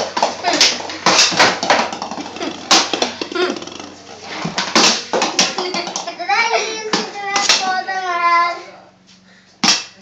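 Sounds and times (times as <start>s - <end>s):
stick and ball knocking on wooden floor: 0.0s - 3.7s, 4.4s - 6.2s, 6.9s - 7.7s.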